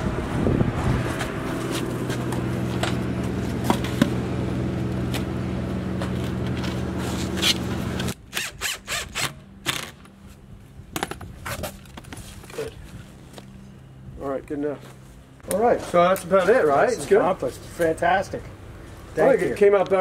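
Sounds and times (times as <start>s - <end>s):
low machine hum: 0.0s - 8.4s.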